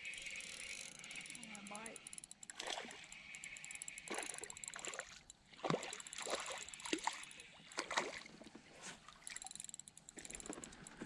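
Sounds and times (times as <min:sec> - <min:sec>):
water splashing: 0:02.5 - 0:03.0, 0:04.0 - 0:09.4.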